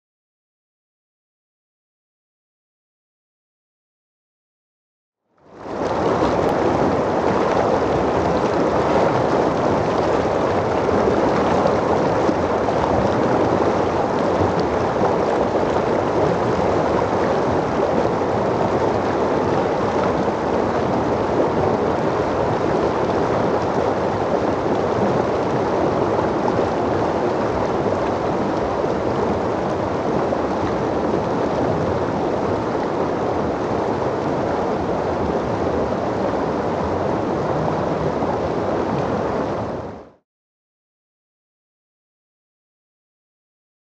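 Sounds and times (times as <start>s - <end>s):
stream rushing over rocks: 5.6s - 40.2s.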